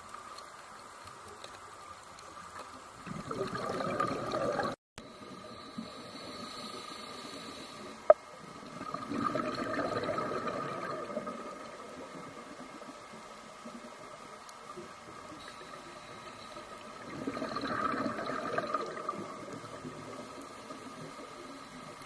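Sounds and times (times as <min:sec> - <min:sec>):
underwater bubbling and rushing water: 0:00.0 - 0:22.0.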